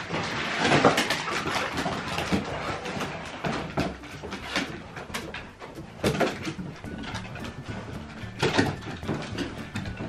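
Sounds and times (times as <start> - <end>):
dogs scrambling on floorboards: 0.0 - 10.0.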